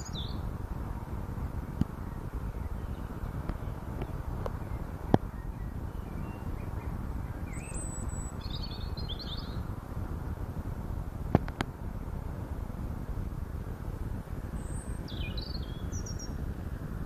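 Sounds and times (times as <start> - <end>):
bird chirping: 0.0 - 0.4, 2.0 - 9.6, 14.5 - 16.4
steady low rumble: 0.0 - 17.0.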